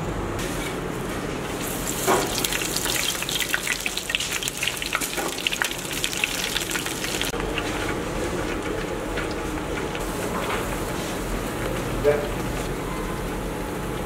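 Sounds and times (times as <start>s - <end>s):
patties sizzling in hot oil: 1.4s - 12.2s.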